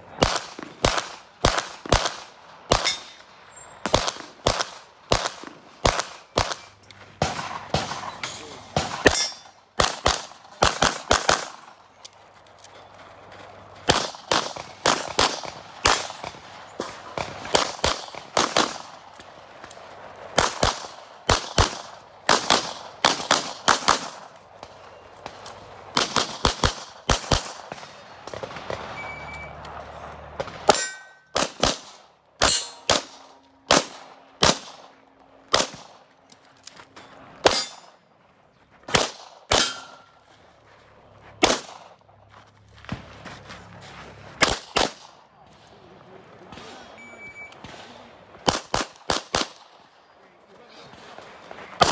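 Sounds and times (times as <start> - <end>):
pistol shots: 0.2 - 11.9, 13.8 - 19.3, 20.3 - 29.6, 30.3 - 36.1, 37.4 - 38.0, 38.9 - 40.2, 41.4 - 42.0, 44.4 - 45.2, 46.4 - 50.0
steel targets ringing: 2.8 - 3.8, 8.1 - 9.6, 30.7 - 31.4, 32.4 - 33.4, 37.4 - 38.0, 39.6 - 40.2.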